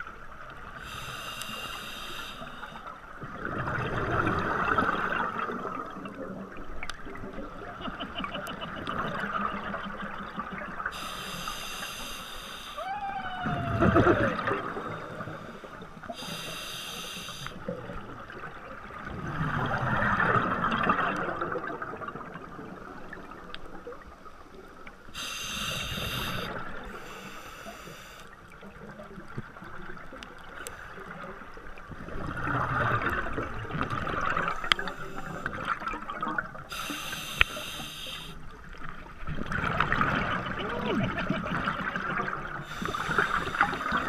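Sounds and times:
regulator hissing inhalations: 0.8 - 2.9, 10.9 - 12.8, 14.8 - 17.6, 25.2 - 28.3, 34.5 - 35.6, 36.7 - 38.4, 42.7 - 44.0.

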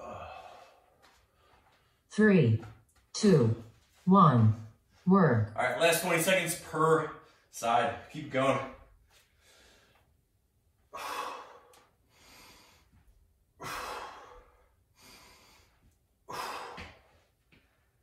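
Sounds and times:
man breathing hard: 0.0 - 1.8, 9.2 - 10.2, 10.8 - 18.0.

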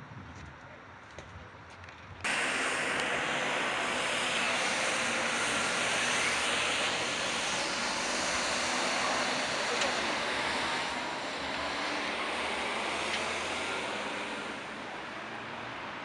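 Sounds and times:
tram wheels rushing on rails: 2.3 - 16.0.

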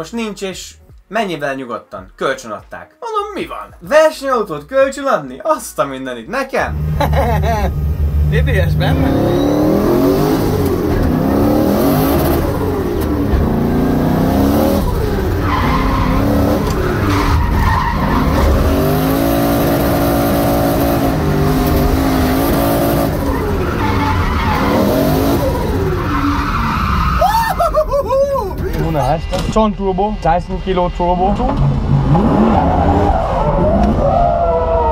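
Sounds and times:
tyres skidding: 6.6 - 30.1, 31.0 - 34.9
car engine revving: 6.7 - 27.7, 28.5 - 34.9.

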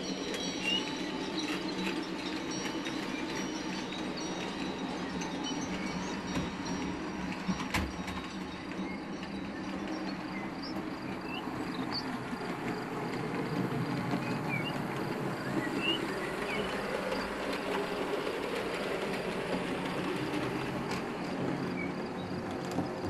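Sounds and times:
model train rumbling on track: 0.0 - 23.0.

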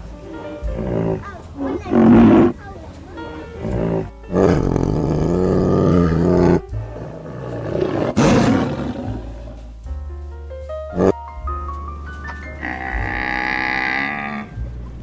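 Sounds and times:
soft background music: 0.0 - 15.0
big cat roaring: 0.6 - 2.6, 3.6 - 9.7, 12.6 - 14.5.

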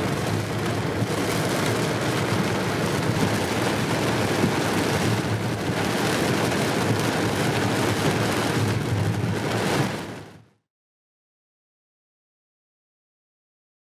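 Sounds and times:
road noise inside car: 0.0 - 10.4
rain on car: 0.0 - 10.5.

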